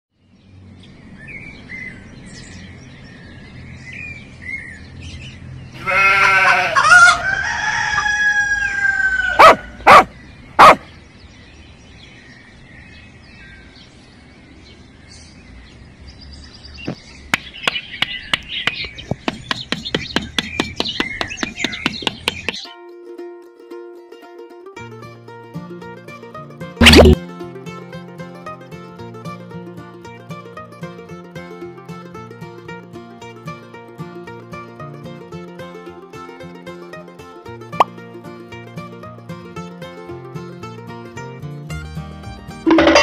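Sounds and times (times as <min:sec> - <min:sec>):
small birds chirping: 0:00.1 - 0:06.2, 0:09.6 - 0:22.7
rooster crowing: 0:05.9 - 0:10.0
sharp loud knocks: 0:17.3 - 0:22.7.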